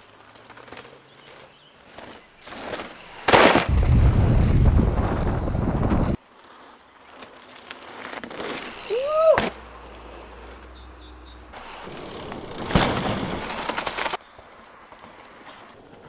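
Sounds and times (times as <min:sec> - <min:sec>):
bike tyres rolling over dirt: 0:00.0 - 0:15.8
tyres hitting ground: 0:00.3 - 0:03.7, 0:07.9 - 0:10.7.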